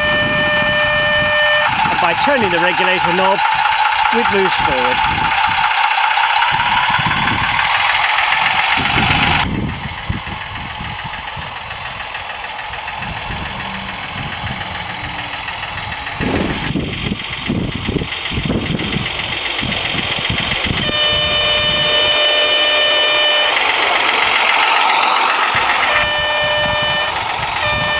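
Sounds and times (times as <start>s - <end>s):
steady horn tone: 0.0s - 1.8s, 13.3s - 16.7s, 20.8s - 23.6s, 25.8s - 27.9s
simulated diesel engine sound: 0.0s - 27.9s.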